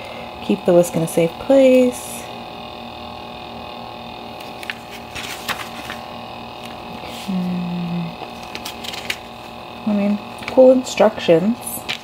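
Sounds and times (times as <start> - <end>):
milk frother humming: 0.0 - 12.0
paper page rustling: 4.4 - 6.1, 8.2 - 9.4.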